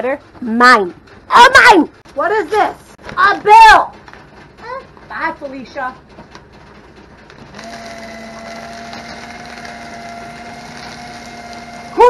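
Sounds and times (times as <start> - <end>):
electric paper shredder humming: 7.2 - 12.0.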